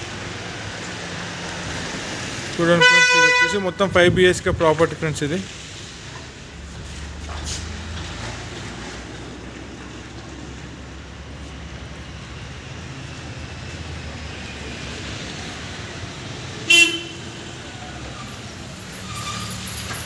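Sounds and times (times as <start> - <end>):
road traffic rumble: 0.0 - 20.0
vehicle horn toot: 2.8 - 3.7, 16.7 - 17.4.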